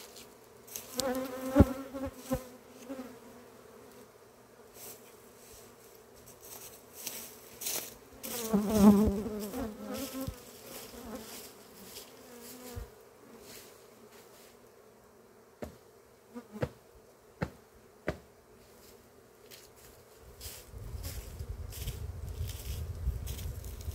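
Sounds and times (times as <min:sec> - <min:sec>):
bee flying past: 0:00.0 - 0:19.1
bees buzzing around hive: 0:00.0 - 0:23.9.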